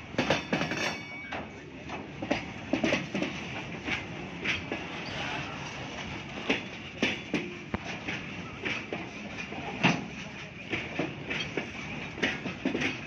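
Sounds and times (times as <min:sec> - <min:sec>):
train wheels clattering on rails: 0:00.0 - 0:13.0.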